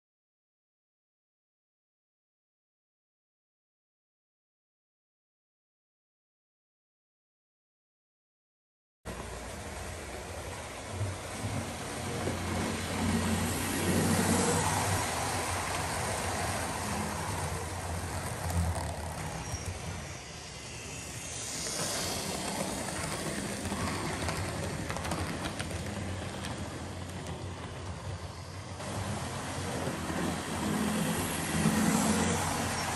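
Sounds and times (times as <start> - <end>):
model train motor hum: 9.1 - 32.9.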